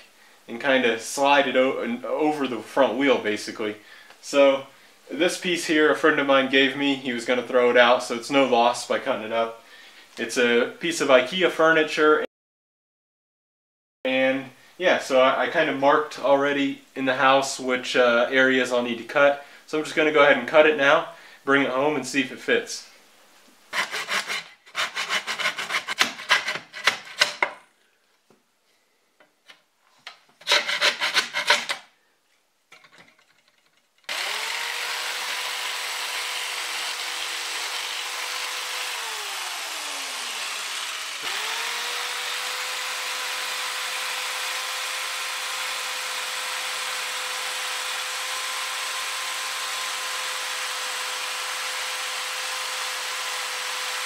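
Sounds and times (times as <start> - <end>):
electric jigsaw whining: 23.7 - 26.4, 34.1 - 54.0
handsaw cutting wood: 23.7 - 27.4, 30.4 - 31.9, 34.1 - 54.0.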